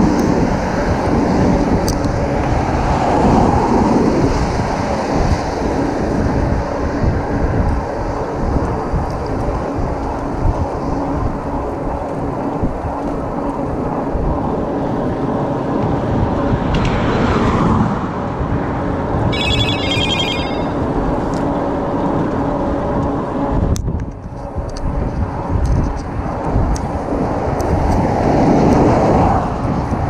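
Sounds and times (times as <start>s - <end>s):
wind rush on microphone: 0.0s - 30.0s
electronic ringing tone: 19.3s - 20.9s.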